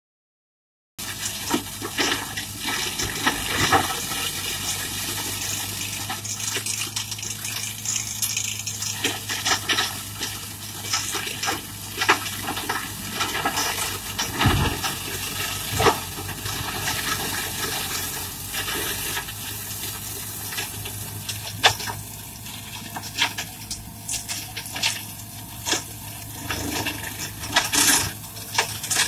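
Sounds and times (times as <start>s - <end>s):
engine hum: 1.0s - 29.0s
wood cracking and snapping: 1.2s - 19.4s.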